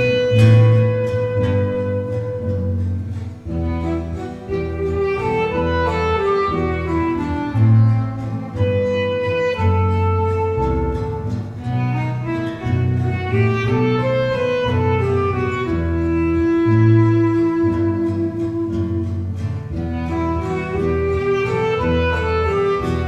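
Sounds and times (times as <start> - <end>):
acoustic bass guitar line: 0.0 - 23.0
melody in long smooth notes: 0.0 - 23.0.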